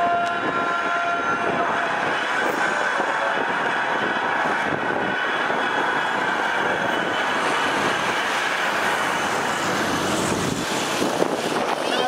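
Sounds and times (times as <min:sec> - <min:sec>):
diesel engine of passing coach: 0:07.3 - 0:12.0.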